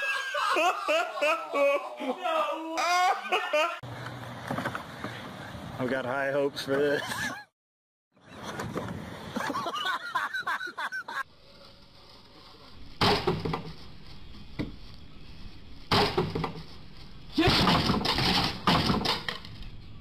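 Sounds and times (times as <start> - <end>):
tool striking wood: 13.0 - 13.8, 15.9 - 16.7, 17.4 - 19.4.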